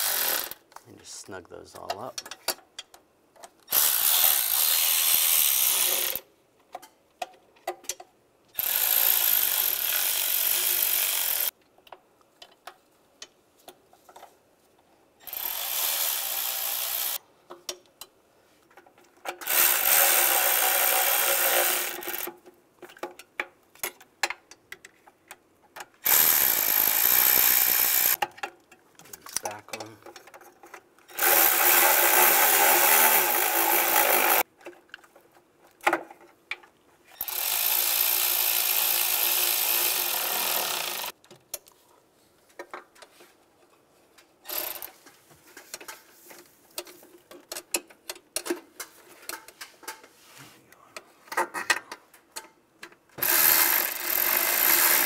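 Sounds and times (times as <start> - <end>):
cordless ratchet running bolts: 26.0 - 28.2, 53.2 - 55.0.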